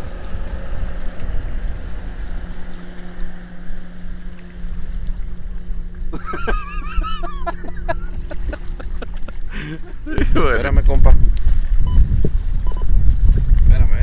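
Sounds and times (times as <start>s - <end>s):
wind buffeting microphone: 0.0s - 6.2s, 7.5s - 14.0s
motorboat engine humming: 0.0s - 14.0s.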